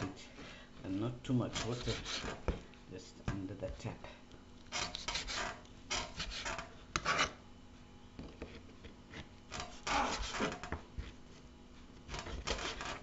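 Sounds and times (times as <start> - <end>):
knife cutting meat on board: 12.1 - 13.0.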